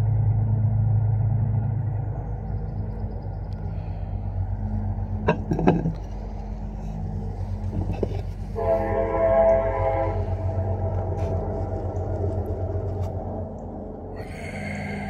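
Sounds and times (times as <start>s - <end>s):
low rumble: 0.0s - 15.0s
loud horn blast: 8.4s - 11.8s.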